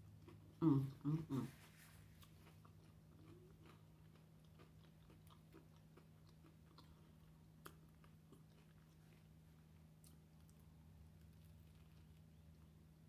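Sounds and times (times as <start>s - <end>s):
faint chewing: 0.0s - 12.9s
steady low hum: 0.0s - 13.0s.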